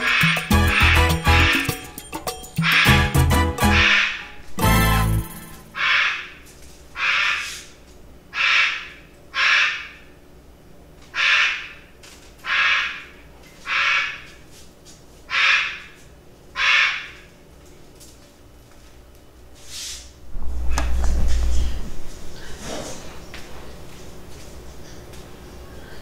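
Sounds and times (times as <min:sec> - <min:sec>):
bird squawking: 0:00.0 - 0:01.8, 0:02.6 - 0:03.0, 0:03.6 - 0:04.3, 0:05.8 - 0:06.4, 0:07.0 - 0:07.6, 0:08.4 - 0:10.0, 0:11.2 - 0:11.8, 0:12.5 - 0:13.1, 0:13.7 - 0:14.3, 0:15.3 - 0:15.8, 0:16.6 - 0:17.2.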